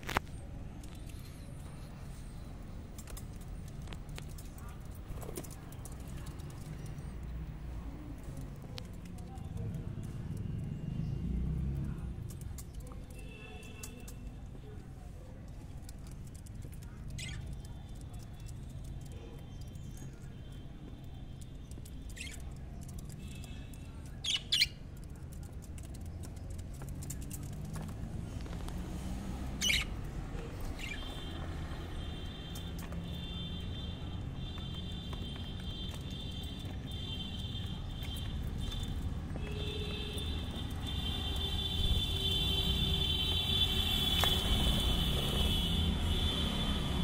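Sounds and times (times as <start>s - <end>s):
budgerigars chirping: 29.6s - 30.0s, 30.8s - 31.1s.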